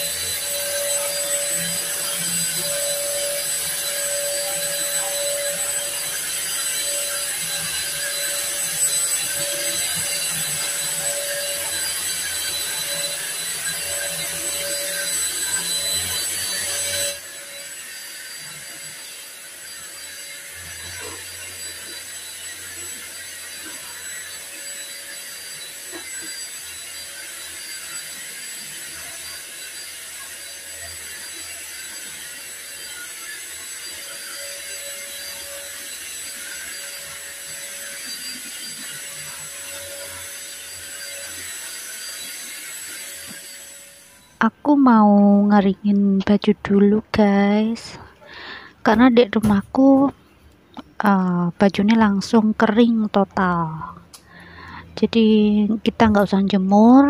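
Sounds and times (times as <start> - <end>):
stick vacuum cleaner motor whine: 0.0 - 57.0.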